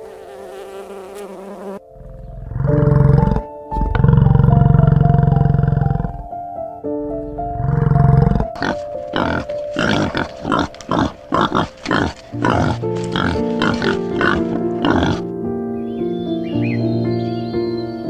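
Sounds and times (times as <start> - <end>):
soft piano music: 0.0 - 18.0
bison bellowing: 1.9 - 6.3, 7.3 - 15.3
wild boar grunting: 1.9 - 6.4, 7.4 - 15.3.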